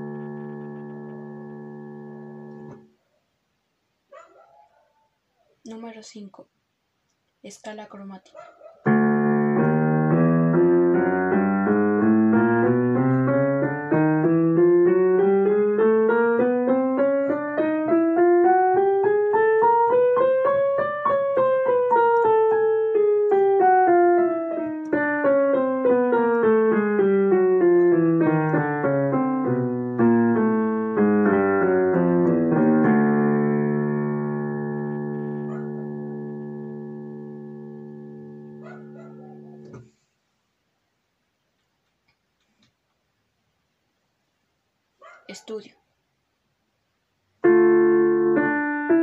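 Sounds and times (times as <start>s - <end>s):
piano playing chromatic scale: 0.0s - 2.8s, 8.9s - 39.7s, 47.4s - 49.0s.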